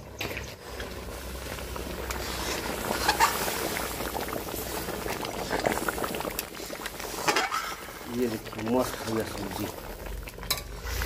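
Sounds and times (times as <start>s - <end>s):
curry boiling and bubbling: 0.0s - 11.0s.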